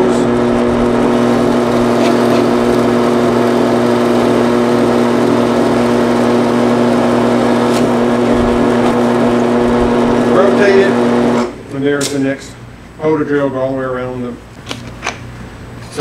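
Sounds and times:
drill press boring into wood: 0.0 - 11.5.

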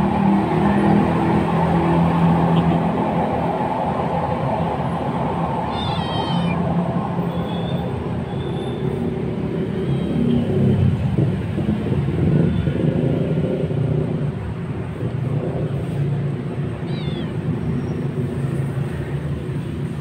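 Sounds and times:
kitten meowing: 5.7 - 6.6, 16.7 - 17.6.

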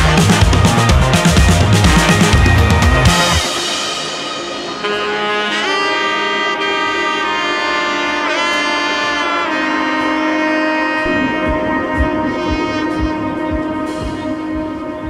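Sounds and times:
low drum beat: 0.0 - 3.6, 11.0 - 15.0
melody with pitch bends: 10.8 - 15.0.

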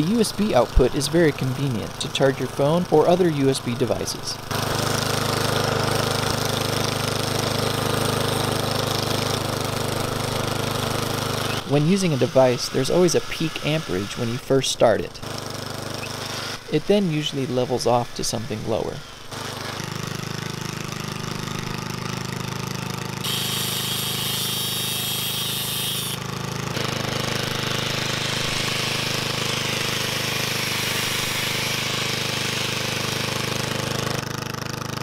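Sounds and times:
lawnmower engine running: 0.0 - 35.0
angle grinder whirring: 4.5 - 14.4, 15.2 - 16.8, 19.0 - 35.0
corded drill whining: 10.3 - 14.3, 15.2 - 16.7, 23.2 - 33.9.

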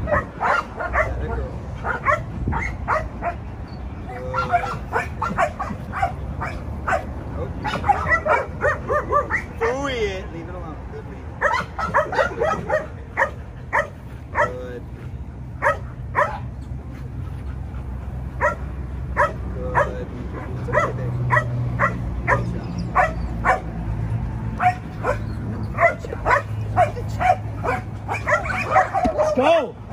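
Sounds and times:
dog barking: 0.0 - 3.4, 4.3 - 9.6, 11.4 - 14.6, 15.6 - 16.5, 18.4 - 18.6, 19.2 - 23.8, 24.6 - 29.5.

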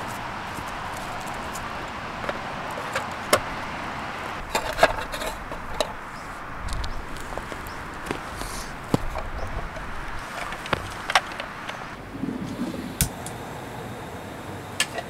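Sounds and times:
steady hiss: 6.0 - 15.0.

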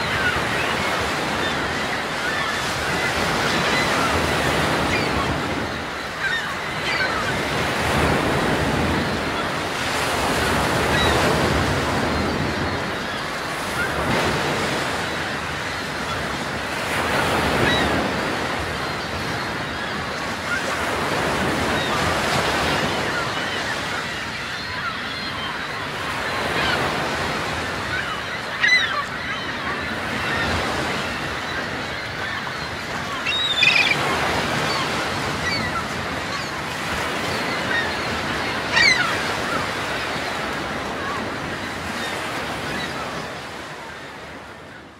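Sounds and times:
sea waves washing: 0.0 - 44.7
high seabird calls: 0.0 - 44.9.

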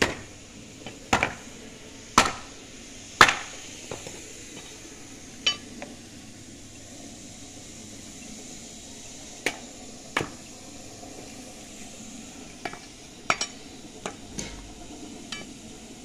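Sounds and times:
sharp clinks and knocks: 5.5 - 5.7, 14.3 - 15.5.

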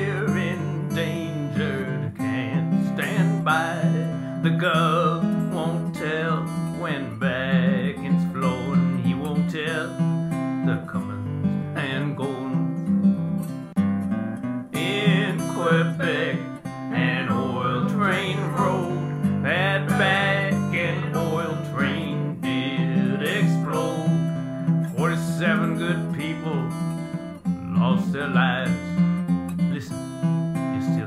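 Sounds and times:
acoustic guitar strumming: 0.0 - 31.0
sliding bending melody line: 14.5 - 26.7.

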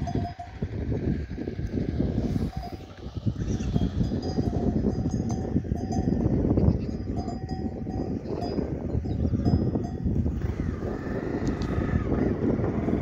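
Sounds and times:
goat bells clinking: 0.0 - 1.3, 2.3 - 10.2
steady low rumble: 0.0 - 13.0.

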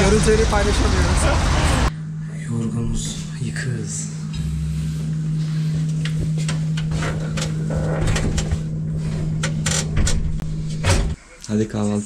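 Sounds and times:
steady low hum: 0.0 - 11.7.

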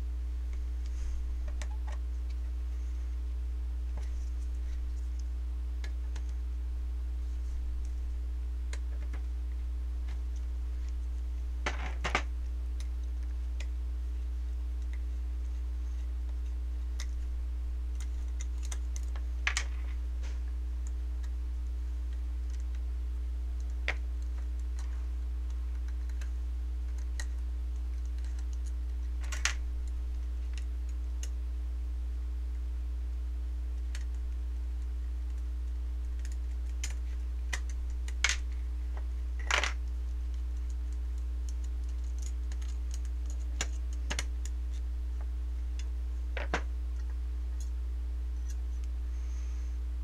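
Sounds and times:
steady low hum: 0.0 - 50.0.

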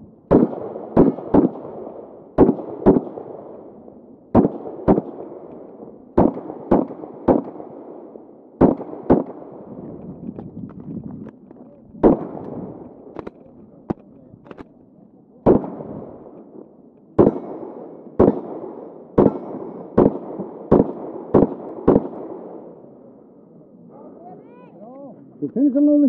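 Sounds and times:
pistol shots: 0.3 - 9.7, 12.0 - 14.7, 15.4 - 22.8
faint sharp cracks: 10.0 - 14.8.

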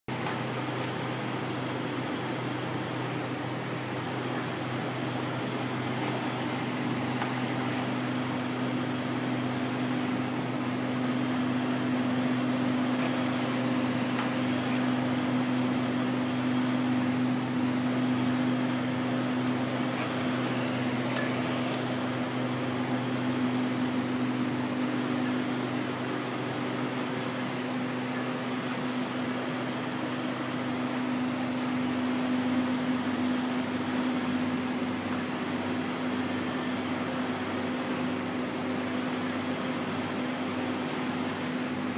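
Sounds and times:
printer machine hum: 0.1 - 32.0.

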